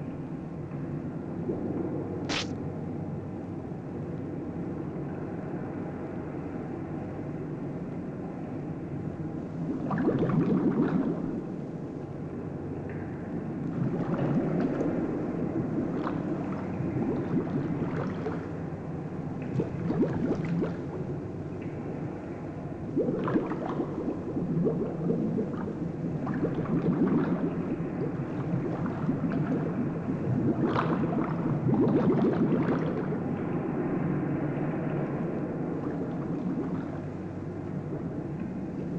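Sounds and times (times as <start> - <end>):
underwater bubbling and gurgling: 0.0 - 38.9
scuba regulator bubbles: 9.5 - 12.1, 13.4 - 34.1, 34.8 - 38.9.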